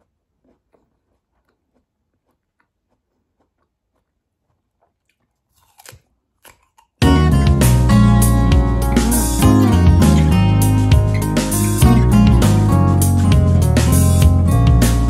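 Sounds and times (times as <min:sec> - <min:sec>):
crunchy bite into pear: 0:00.0 - 0:07.0
faint chewing of pear: 0:00.0 - 0:07.0.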